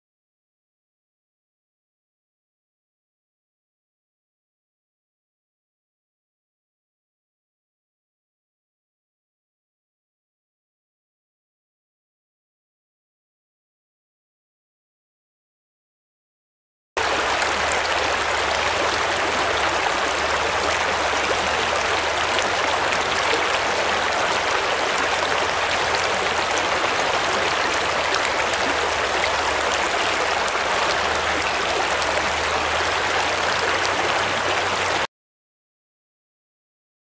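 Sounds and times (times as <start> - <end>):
stream running over rocks: 17.0 - 35.1.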